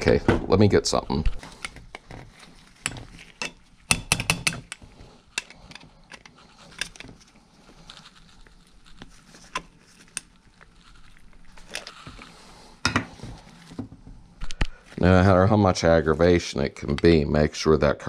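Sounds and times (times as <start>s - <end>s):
small metal scrapes: 1.3s - 13.8s.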